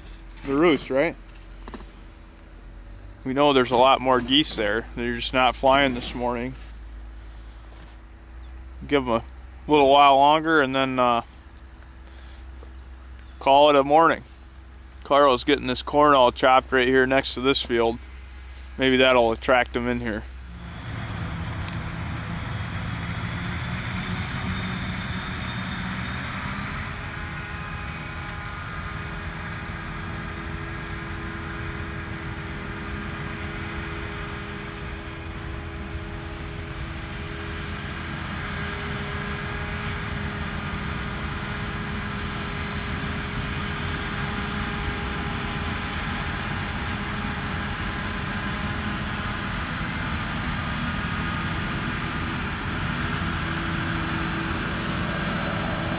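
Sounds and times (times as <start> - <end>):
forage harvester engine drone: 0.0 - 55.9.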